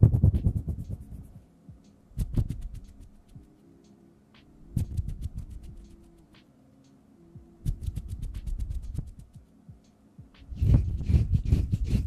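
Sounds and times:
fingernails clicking at microphone: 0:02.2 - 0:03.5, 0:04.4 - 0:06.5, 0:07.6 - 0:09.4.

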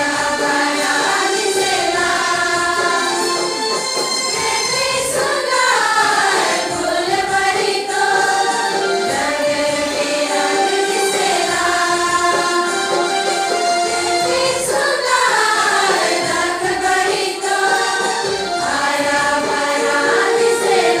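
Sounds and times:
women's choir singing a hymn: 0:00.0 - 0:21.0.

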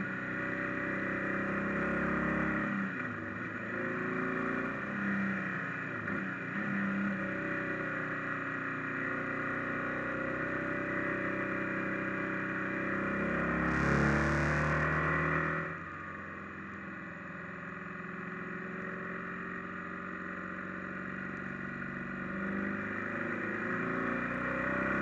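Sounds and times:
motorcycle engine running: 0:11.0 - 0:24.0
wind and road noise: 0:12.7 - 0:16.9.

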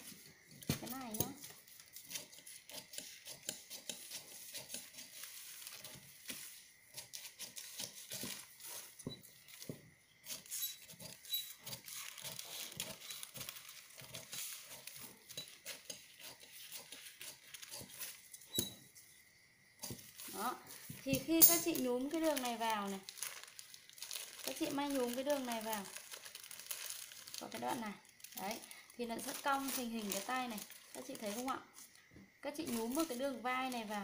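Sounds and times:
paper rustling: 0:04.5 - 0:09.7, 0:10.4 - 0:18.2, 0:21.6 - 0:27.6
shears snipping paper: 0:10.3 - 0:18.2.

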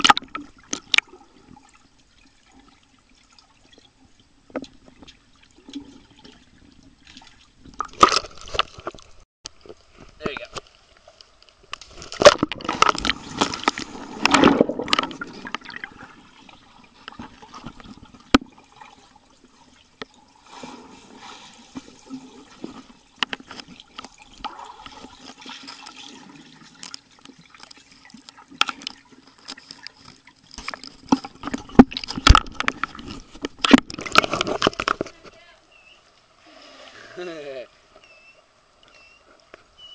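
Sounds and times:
water splashing and bubbling: 0:00.0 - 0:35.3
sharp knocks underwater: 0:07.7 - 0:10.7, 0:11.7 - 0:16.1, 0:30.6 - 0:35.3.

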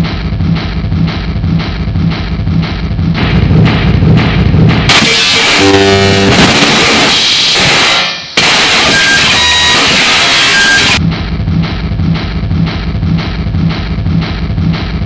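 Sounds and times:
low pulsing rumble: 0:00.0 - 0:05.0, 0:05.6 - 0:06.7, 0:11.0 - 0:15.0
static blast with buzzing tones: 0:03.2 - 0:11.0.

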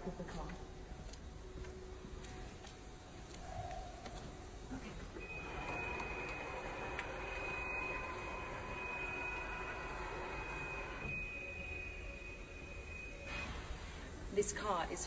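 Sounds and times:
steady high-pitched tone: 0:03.1 - 0:15.0.

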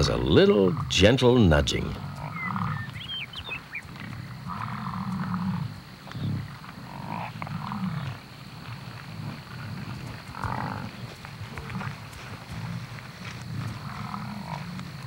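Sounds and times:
bison low grunting calls: 0:00.0 - 0:15.0
higher-pitched animal calls: 0:02.0 - 0:08.2.

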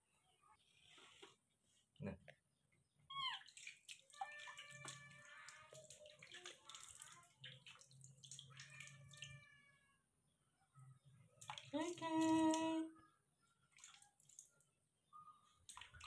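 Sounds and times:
water splashing and dripping: 0:03.3 - 0:09.5, 0:11.4 - 0:12.8, 0:13.7 - 0:14.7, 0:15.6 - 0:16.0.

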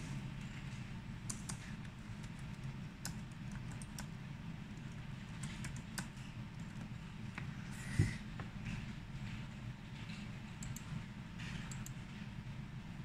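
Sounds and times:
steady low hum: 0:00.0 - 0:13.0
keyboard typing clicks: 0:01.3 - 0:04.1, 0:04.8 - 0:06.9, 0:10.6 - 0:11.0, 0:11.6 - 0:12.0.

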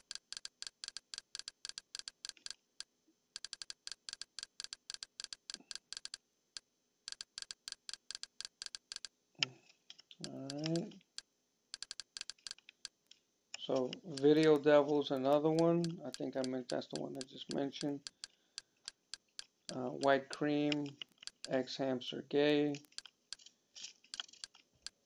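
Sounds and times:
man's voice murmuring: 0:10.2 - 0:11.0, 0:13.6 - 0:18.0, 0:19.7 - 0:22.8.

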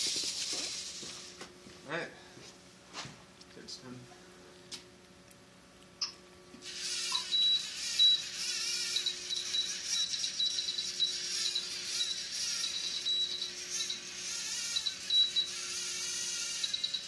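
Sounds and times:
high motor whine: 0:06.6 - 0:17.0
robot drive motors whirring: 0:06.6 - 0:17.0.

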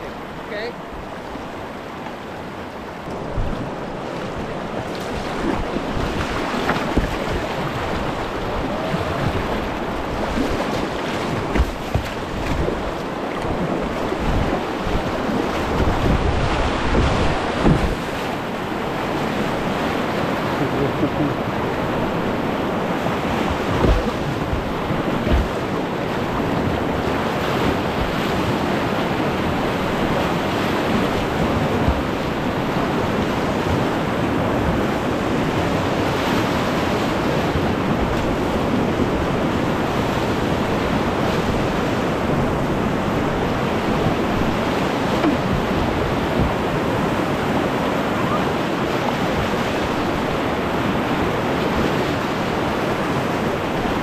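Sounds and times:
whitewater river rushing: 0:00.0 - 0:54.0
dull thumps: 0:16.8 - 0:18.1, 0:23.6 - 0:25.7.

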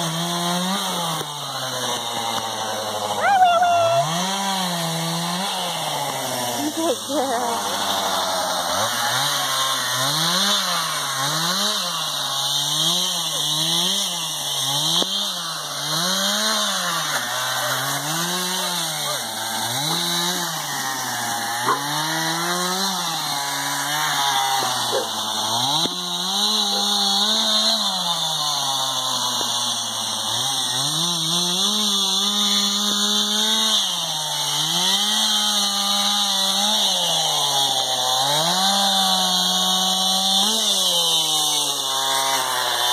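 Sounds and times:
chainsaw engine revving: 0:00.0 - 0:42.9.

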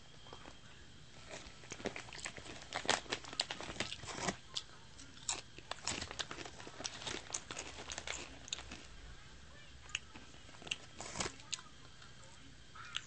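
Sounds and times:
person chewing crunchy chips: 0:01.2 - 0:09.0, 0:09.9 - 0:11.6.

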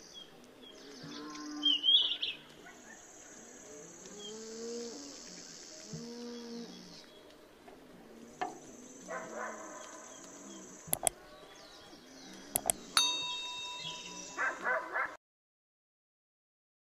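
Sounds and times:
birds chirping: 0:08.3 - 0:15.0
mouse clicks: 0:10.9 - 0:11.2, 0:12.5 - 0:12.9
bell-like ding: 0:13.0 - 0:14.6.

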